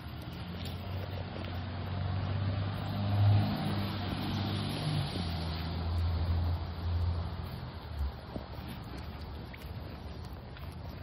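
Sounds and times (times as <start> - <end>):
motor vehicle humming: 0.0 - 11.0.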